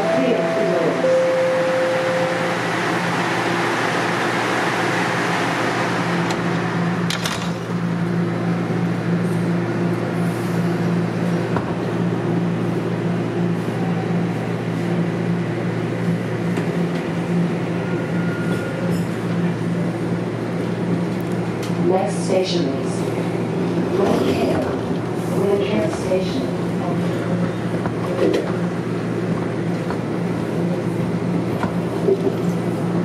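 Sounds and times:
train motor hum: 0:00.0 - 0:18.2
wheels rumbling on track: 0:00.0 - 0:33.0.

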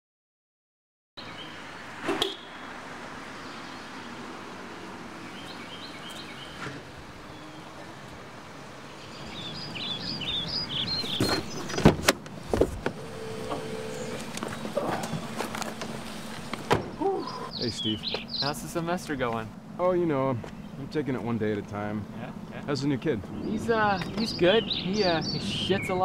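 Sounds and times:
birds chirping: 0:01.2 - 0:26.0
car pulling up: 0:09.1 - 0:18.3
car door unlatching and opening: 0:11.0 - 0:17.0.

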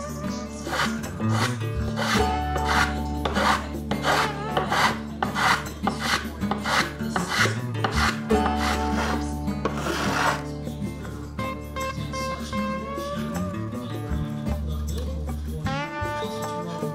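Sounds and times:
acoustic guitar music: 0:00.0 - 0:16.9
hand tool scraping wood: 0:00.6 - 0:10.5.

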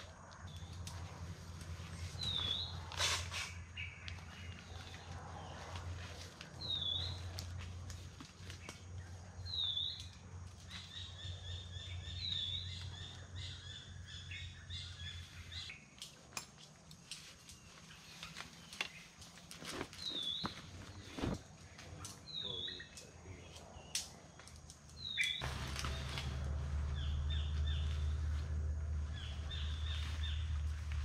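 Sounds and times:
bird chirping: 0:01.8 - 0:06.0, 0:06.6 - 0:07.4, 0:08.6 - 0:15.9, 0:20.0 - 0:24.4, 0:25.0 - 0:31.0
rustling and clicks of gear: 0:15.8 - 0:22.3.

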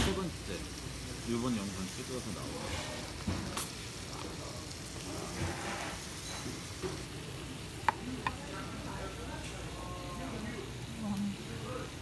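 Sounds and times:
meat sizzling on grill pan: 0:00.0 - 0:12.0
tableware clinking: 0:05.4 - 0:07.1.

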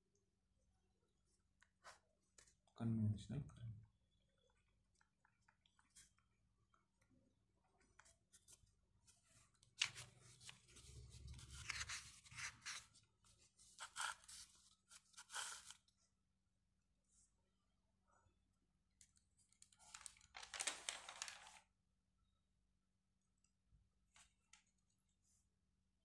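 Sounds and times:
hands and paper rustling: 0:07.8 - 0:15.8, 0:19.4 - 0:21.6.

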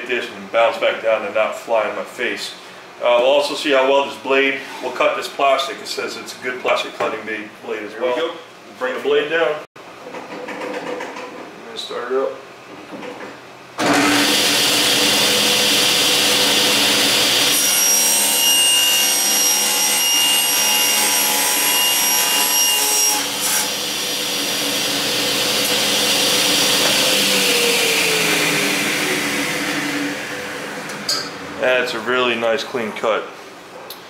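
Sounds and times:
table saw motor running: 0:13.8 - 0:22.6, 0:23.2 - 0:31.6.

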